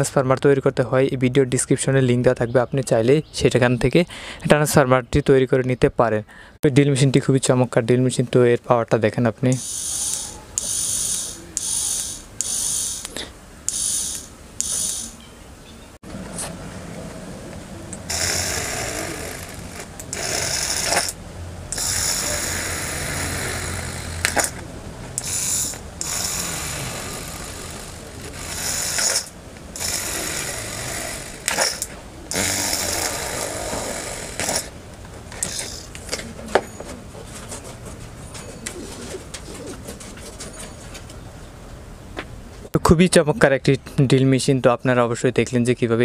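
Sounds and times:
sharp clicks: 9.5 - 15.2, 17.9 - 24.6
small electric drill running: 9.6 - 15.2, 18.1 - 24.6, 25.2 - 34.7.

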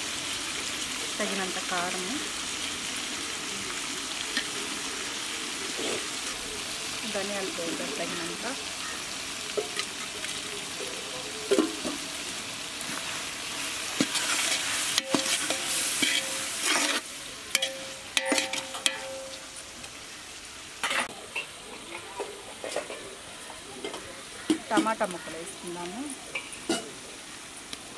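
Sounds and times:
food sizzling in a pot: 0.0 - 27.9
metal ladle scraping a pot: 14.0 - 19.2.

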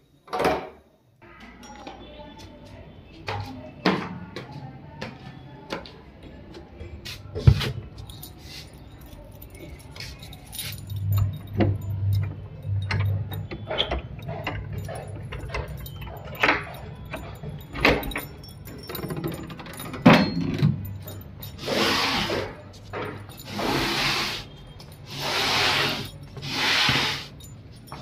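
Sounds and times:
keys jangling: 7.9 - 28.0.

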